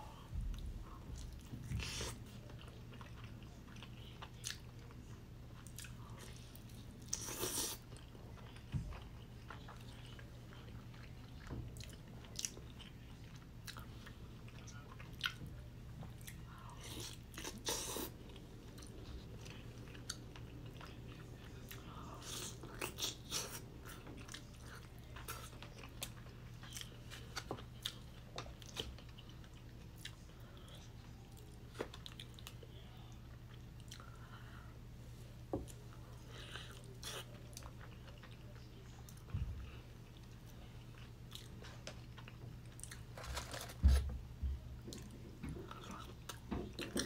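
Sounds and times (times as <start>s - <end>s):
steady low hum: 0.0s - 47.0s
crunchy chewing: 35.7s - 43.8s.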